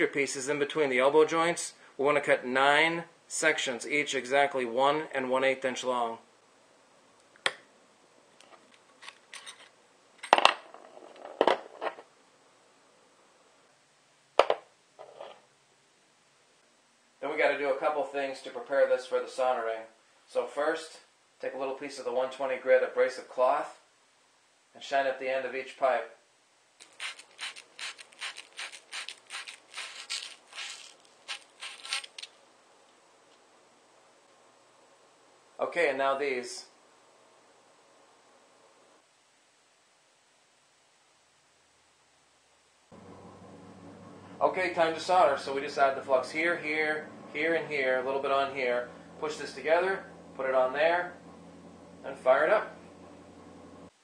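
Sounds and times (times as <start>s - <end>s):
abrasive cloth rubbing copper pipe: 26.8s - 32.3s.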